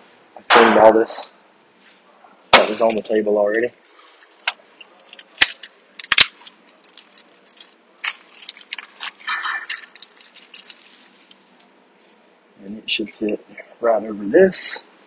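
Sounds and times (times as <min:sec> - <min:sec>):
scraping and rustling: 0:04.0 - 0:12.2.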